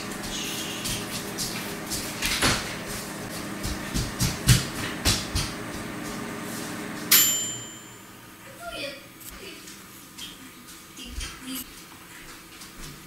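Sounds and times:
bright ring with high tones: 0:07.1 - 0:08.6.

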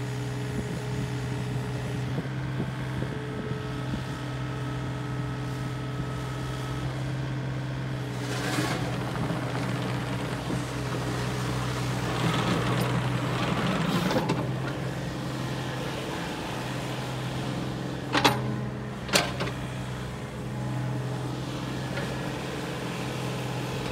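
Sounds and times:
excavator diesel engine running: 0:00.0 - 0:23.9.

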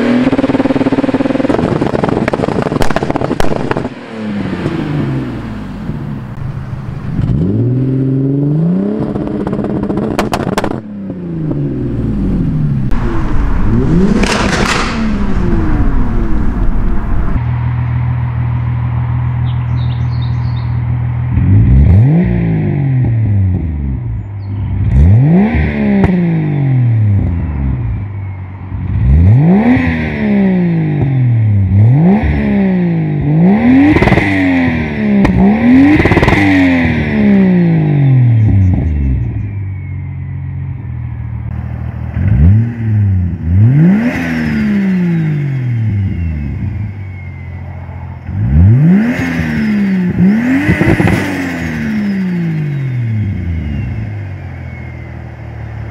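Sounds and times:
car engine revving: 0:00.0 - 0:17.7, 0:21.3 - 0:27.9, 0:28.8 - 0:39.5, 0:41.4 - 0:55.9.

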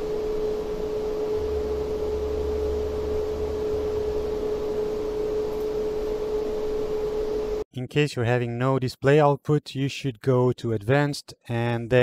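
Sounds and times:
constant mid-pitched tone: 0:00.0 - 0:07.6
fan hum and hiss: 0:00.0 - 0:07.6
low rumble: 0:01.3 - 0:05.6.

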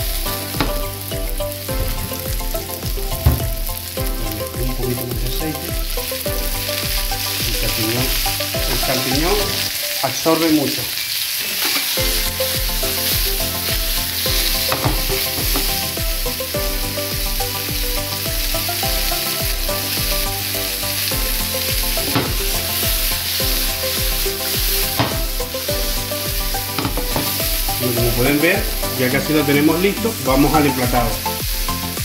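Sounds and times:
background music with steady beat: 0:00.0 - 0:10.6, 0:11.9 - 0:32.0
mushrooms sizzling in oil: 0:00.0 - 0:32.0
frying pan tossed: 0:03.1 - 0:03.7, 0:14.4 - 0:15.8, 0:25.0 - 0:25.4.

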